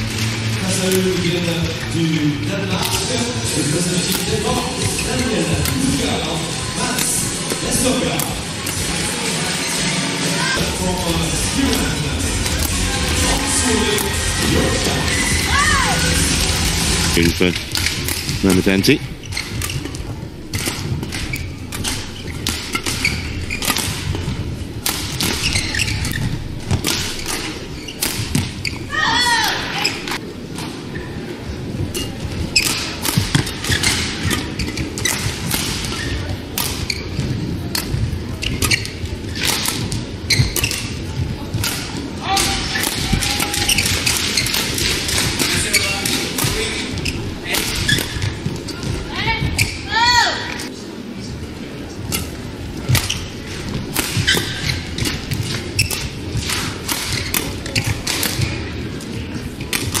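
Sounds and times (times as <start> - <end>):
hall background noise: 0.0 - 60.0
rackets hitting shuttlecock: 2.8 - 3.3, 4.0 - 9.0, 11.6 - 14.9, 17.5 - 28.7, 31.9 - 48.6, 52.1 - 58.6.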